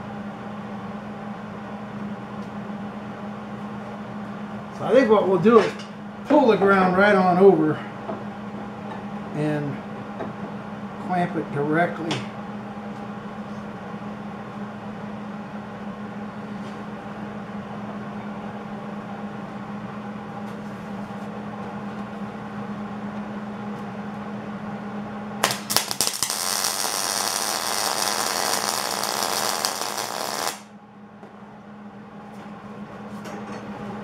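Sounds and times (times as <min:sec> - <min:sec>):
steady low hum: 0:00.0 - 0:34.0
welding arc crackling: 0:25.4 - 0:30.7.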